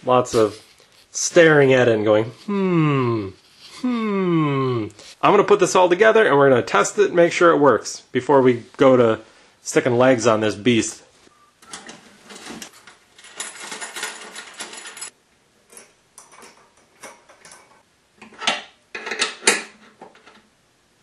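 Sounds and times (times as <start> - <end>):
metal tools clinking and rattling: 11.7 - 17.8.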